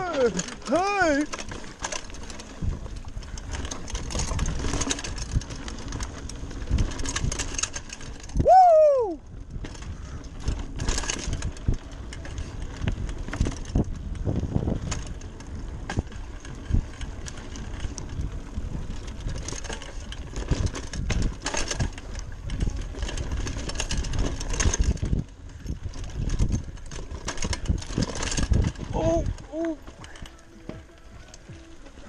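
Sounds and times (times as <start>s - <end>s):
tyres crunching over dirt and stones: 0.0s - 8.4s
bike rattling over bumps: 0.0s - 32.0s.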